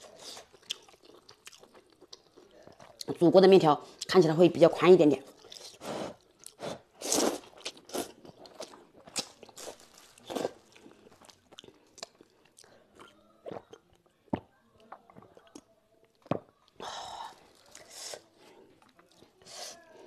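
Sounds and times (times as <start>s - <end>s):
person chewing: 0.0s - 3.2s, 5.3s - 16.6s
slurping noodles: 5.6s - 8.6s.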